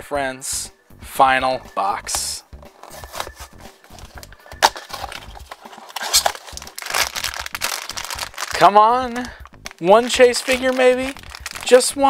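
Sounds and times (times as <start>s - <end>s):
foil bag crinkling: 3.9s - 12.0s
cardboard sharp crack: 4.6s - 7.8s
cardboard box tearing: 4.6s - 8.0s.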